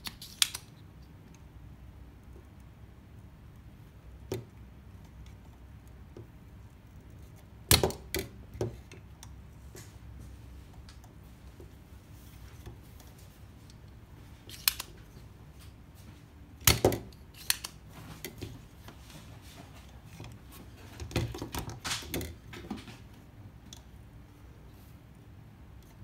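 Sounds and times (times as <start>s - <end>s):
desoldering pump snapping: 0.0s - 0.8s, 7.0s - 9.4s, 14.4s - 15.0s, 16.6s - 18.5s
small plastic clicks: 0.0s - 1.4s.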